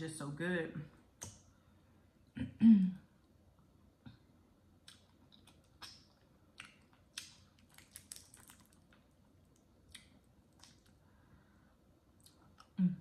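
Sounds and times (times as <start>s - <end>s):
shell cracking and peeling: 6.6s - 10.9s.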